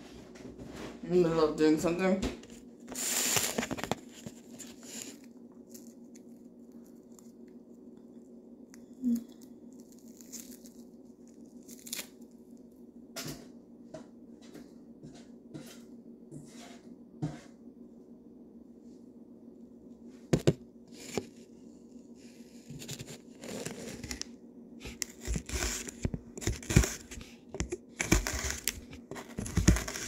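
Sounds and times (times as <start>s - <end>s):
steady low hum: 0.0s - 30.0s
onion skin rustling and tearing: 2.9s - 7.6s, 9.0s - 12.6s, 24.9s - 30.0s.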